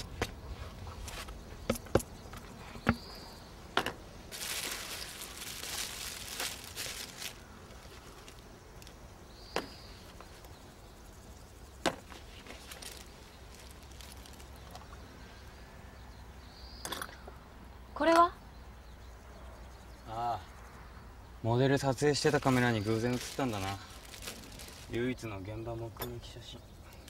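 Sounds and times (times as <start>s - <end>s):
rustle: 0.0s - 15.8s, 21.8s - 27.0s.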